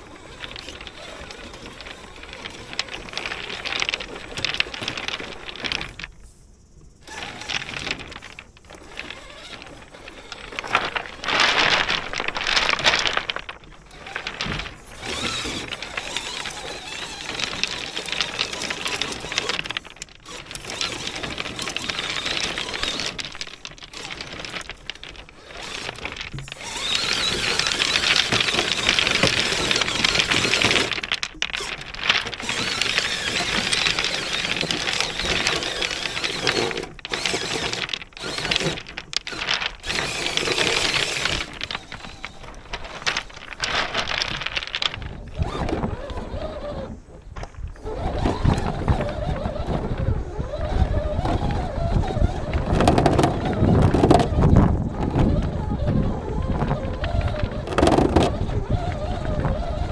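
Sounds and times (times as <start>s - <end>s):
tyres grinding over pebbles: 0.0s - 59.9s
electric motor whining: 7.0s - 47.2s
wind rumble on microphone: 43.7s - 59.9s.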